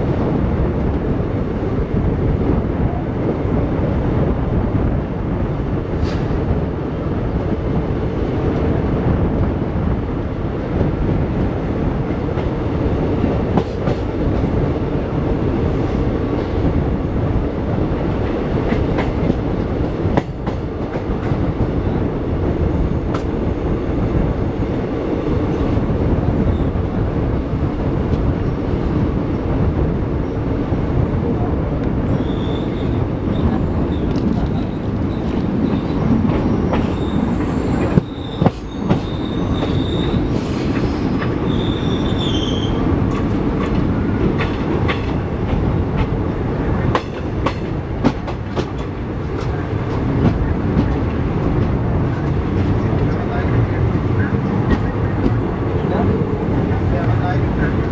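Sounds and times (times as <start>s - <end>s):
train wheels rumbling clickety-clack: 0.0s - 57.9s
high-pitched wheel squeal: 32.2s - 40.2s, 41.5s - 42.8s.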